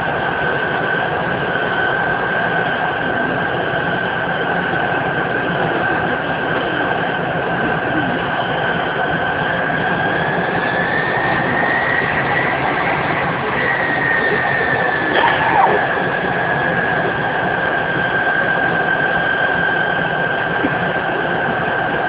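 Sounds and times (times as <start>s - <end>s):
jet engine rush with whine: 0.0s - 22.0s.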